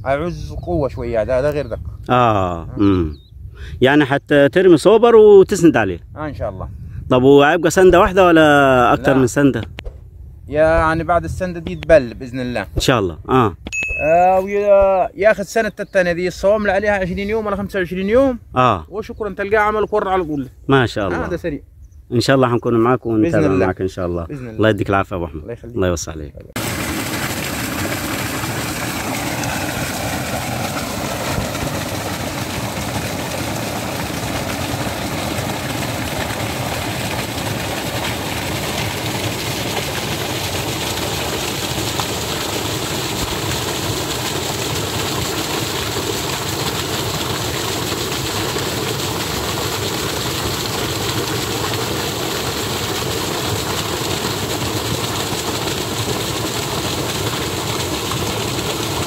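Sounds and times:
water rushing over stones: 26.6s - 59.0s.

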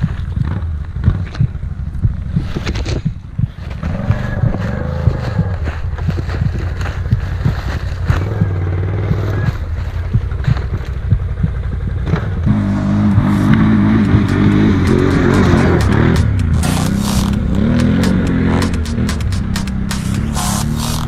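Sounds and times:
atv engine revving: 0.0s - 21.0s
tyres churning through mud: 0.0s - 21.0s.

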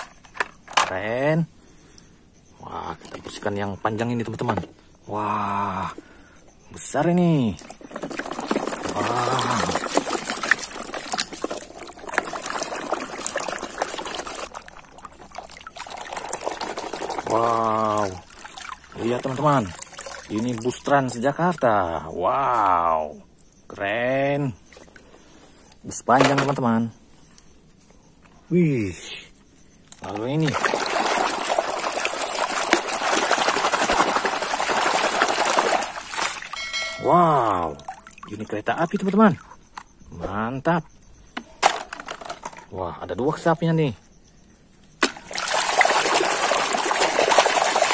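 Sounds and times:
water sloshing in a tub: 6.8s - 21.8s, 24.3s - 25.4s, 29.9s - 40.0s, 45.0s - 47.9s.

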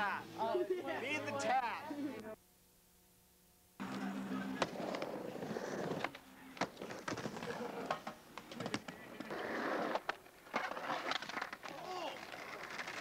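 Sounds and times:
skateboard wheels rolling: 3.8s - 13.0s
skateboard clacking on ramp: 10.0s - 13.0s.

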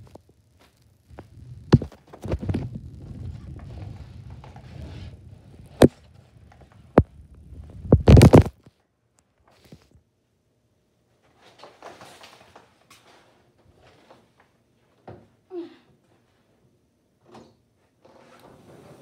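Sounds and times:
low rumble: 1.0s - 8.1s
knocking and rubbing: 6.6s - 8.6s.

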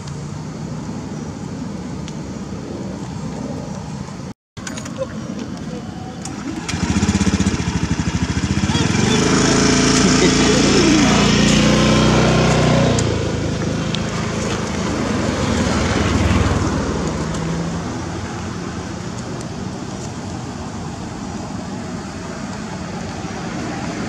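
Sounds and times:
road noise: 0.0s - 24.0s
vehicle passing: 6.2s - 24.0s
vehicle engine running: 6.3s - 17.3s.

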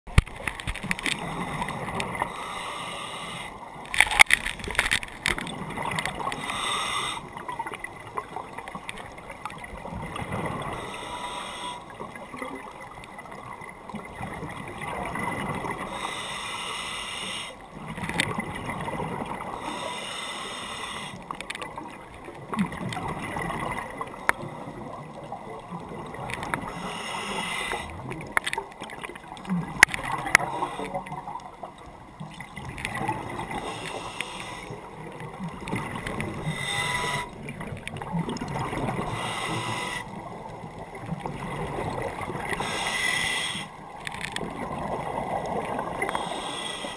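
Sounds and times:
exhaled bubbles gurgling: 0.1s - 46.9s
diver inhaling through regulator: 2.2s - 3.6s, 6.3s - 7.4s, 10.6s - 11.9s, 15.8s - 17.6s, 19.5s - 21.2s, 26.6s - 28.0s, 30.4s - 31.1s, 33.4s - 34.9s, 36.3s - 37.4s, 39.0s - 40.2s, 42.5s - 43.8s, 46.0s - 46.9s.

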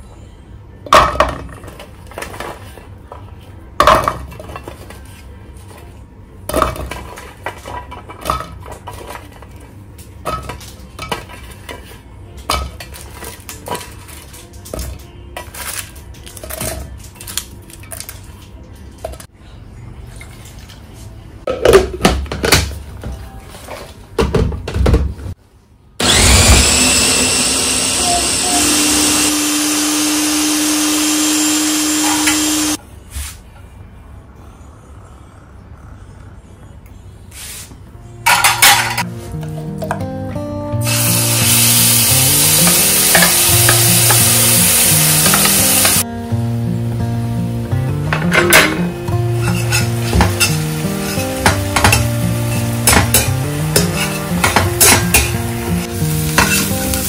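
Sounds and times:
electric chopper motor whine: 26.0s - 32.8s.

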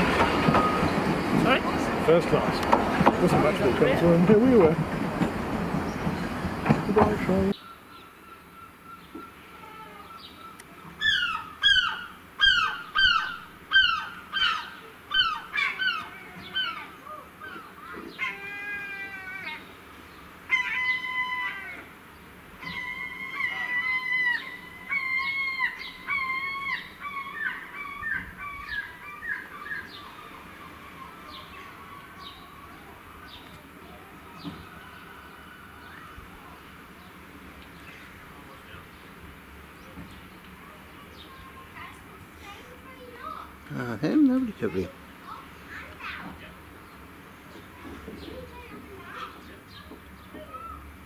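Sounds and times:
gull yelping cries: 11.0s - 19.7s, 20.5s - 22.0s, 22.6s - 32.8s.

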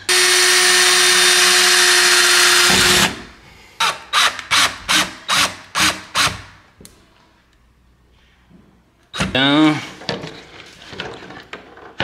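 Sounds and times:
cordless drill driving screw: 0.1s - 3.2s.

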